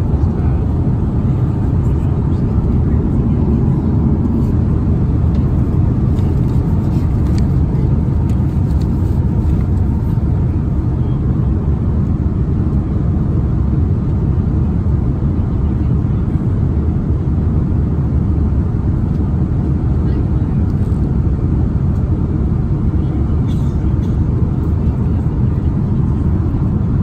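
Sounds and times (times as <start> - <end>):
airplane cabin rumble: 0.0 - 27.0.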